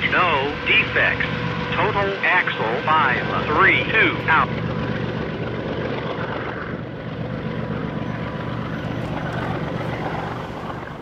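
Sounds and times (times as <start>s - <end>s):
locomotive engine drone: 0.0s - 11.0s.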